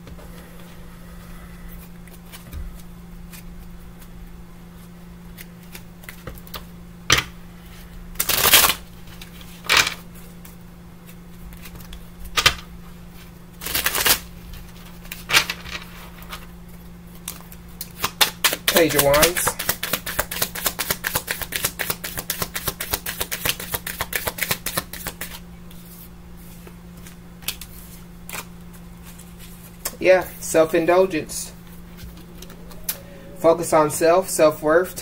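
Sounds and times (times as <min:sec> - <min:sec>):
low hum: 0:00.0 - 0:05.3, 0:28.1 - 0:35.0
cards being shuffled: 0:17.1 - 0:29.9.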